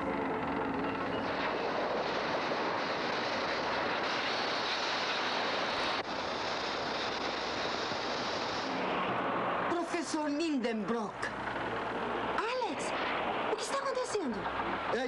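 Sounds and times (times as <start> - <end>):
steam rushing: 1.2 - 10.3.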